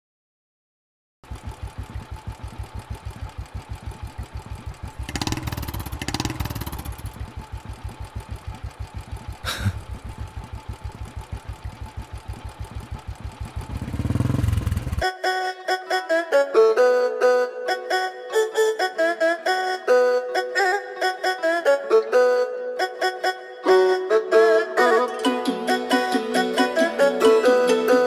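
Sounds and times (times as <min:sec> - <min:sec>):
motorcycle engine idling: 0:01.2 - 0:15.1
music: 0:15.0 - 0:28.0.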